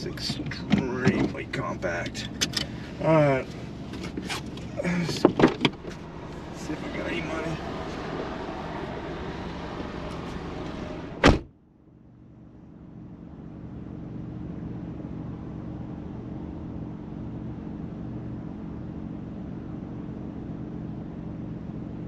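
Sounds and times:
muffled car engine idling: 0.0s - 11.4s
open-air noise: 0.0s - 22.0s
car door slamming: 5.0s - 6.1s, 10.1s - 11.5s.

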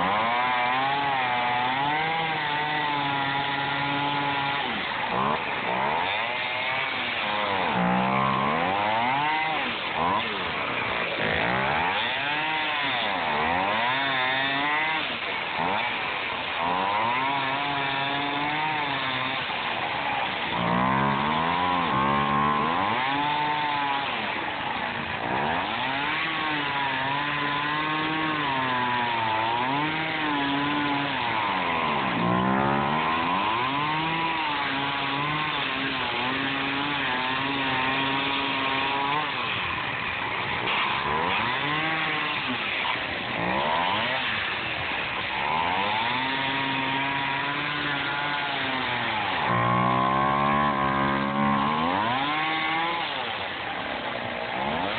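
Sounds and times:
chainsaw cutting foam: 0.0s - 54.9s.

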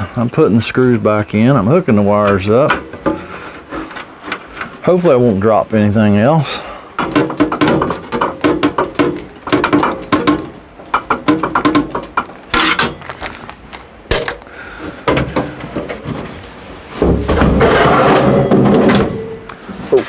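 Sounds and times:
metal scraping rumble: 15.0s - 20.0s.

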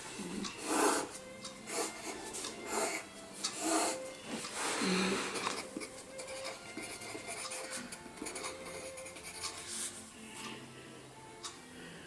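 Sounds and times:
pencil scratching on paper: 0.6s - 1.1s, 1.7s - 3.0s, 3.6s - 4.0s, 4.6s - 10.0s.

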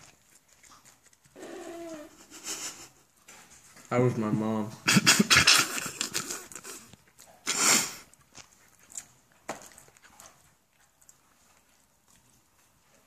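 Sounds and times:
mouth clicks while chewing: 5.4s - 12.6s
person snorting breath: 5.5s - 8.1s.

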